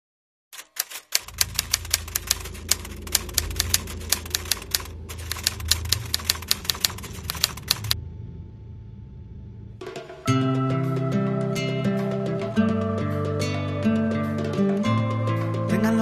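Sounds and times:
typewriter keys clacking: 0:00.6 - 0:08.0
low hum: 0:01.2 - 0:15.0.

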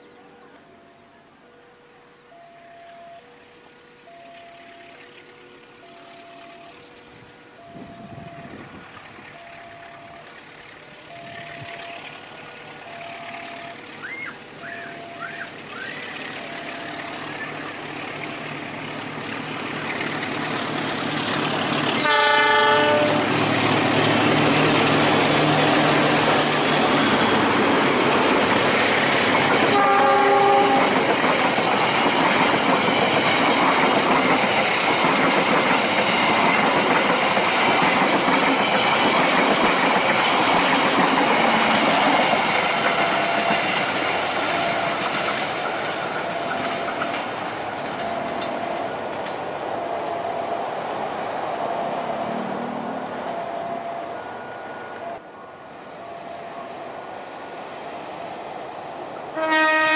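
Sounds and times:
diesel train engine passing: 0:00.0 - 0:59.9
train wheels rumbling on rails: 0:04.2 - 0:55.2
locomotive horn blasts: 0:21.9 - 0:27.1, 0:29.6 - 0:31.0, 0:59.3 - 0:59.9.

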